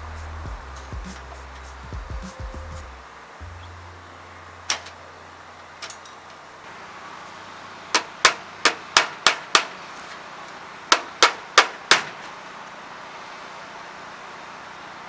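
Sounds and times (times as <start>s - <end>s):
hammer striking nail into metal: 7.9s - 9.8s, 10.9s - 12.2s.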